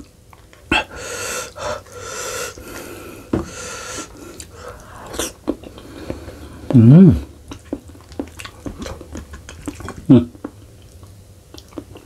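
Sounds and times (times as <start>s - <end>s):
breathing through nose: 0.8s - 6.5s.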